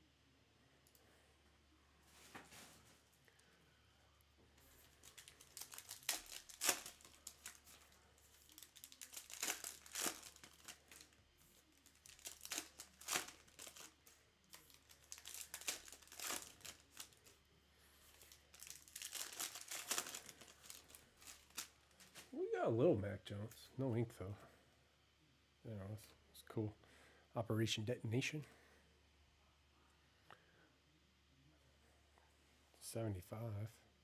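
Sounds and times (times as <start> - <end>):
card pack wrappers tearing: 4.8 - 17.4, 18.1 - 22.3.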